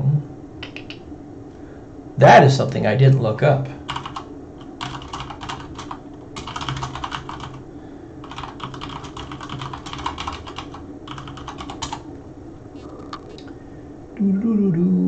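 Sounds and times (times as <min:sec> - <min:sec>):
keyboard typing: 0:03.9 - 0:07.6, 0:08.2 - 0:12.0.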